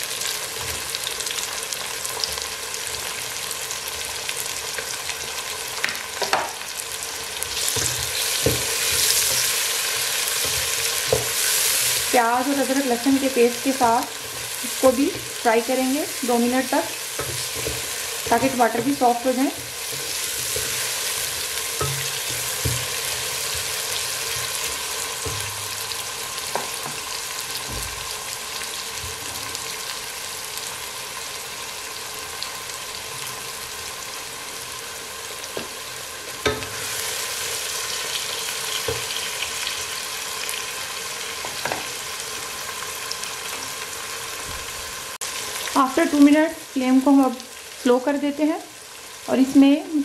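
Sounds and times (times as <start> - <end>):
food sizzling in hot oil: 0.0 - 50.0
spoon knocking against pot: 21.8 - 23.7.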